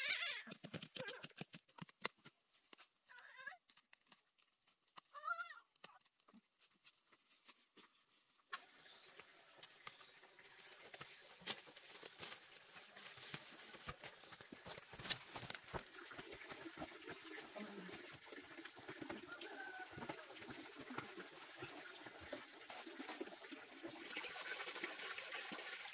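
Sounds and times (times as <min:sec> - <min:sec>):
footsteps rustling through leaf litter: 0:06.6 - 0:15.7.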